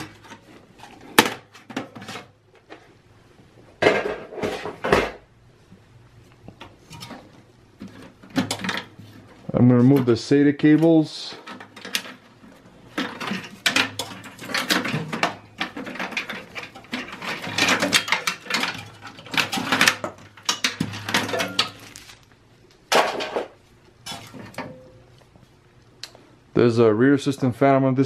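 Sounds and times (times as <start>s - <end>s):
cables clicking and rattling: 6.3s - 22.8s.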